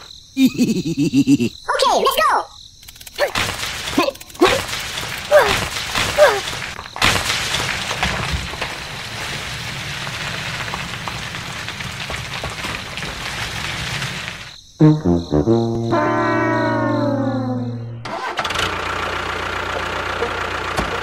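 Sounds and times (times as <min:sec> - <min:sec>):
water spraying and splashing: 0:03.4 - 0:14.5
low hum: 0:14.9 - 0:18.1.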